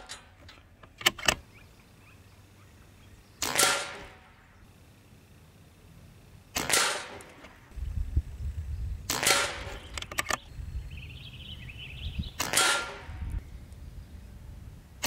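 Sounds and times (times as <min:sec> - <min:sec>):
air rifle clicks: 0:00.0 - 0:01.5, 0:03.4 - 0:04.2, 0:06.6 - 0:07.7, 0:09.1 - 0:10.5, 0:12.4 - 0:13.8
air rifle shots: 0:03.4 - 0:04.4, 0:06.5 - 0:07.7, 0:09.0 - 0:10.4, 0:12.4 - 0:13.4.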